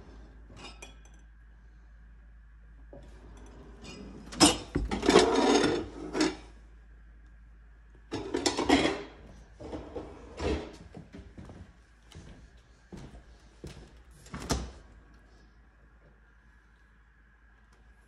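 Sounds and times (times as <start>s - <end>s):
kitchen drawers sliding: 3.2s - 6.4s, 8.2s - 10.8s.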